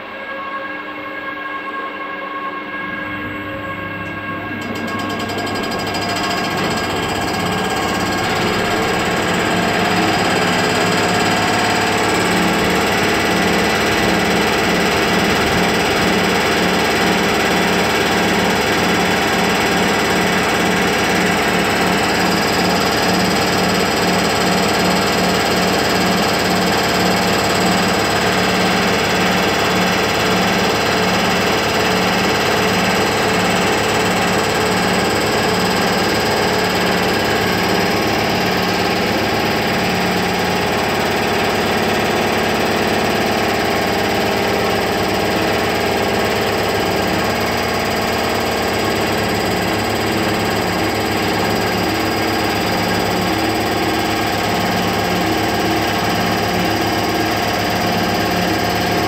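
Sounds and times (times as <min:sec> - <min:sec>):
low rhythmic pulse: 0:00.4 - 0:09.8
locomotive machinery humming: 0:02.4 - 0:22.3.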